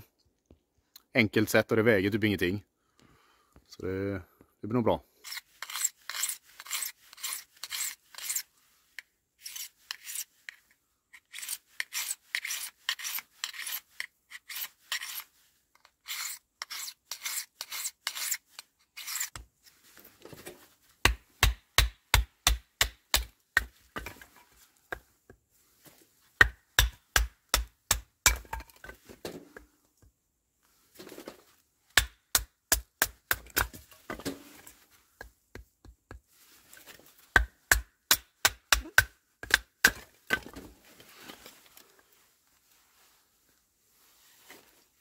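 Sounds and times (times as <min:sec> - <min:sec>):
knife rasping on sharpener: 0:05.2 - 0:08.5, 0:09.4 - 0:19.3.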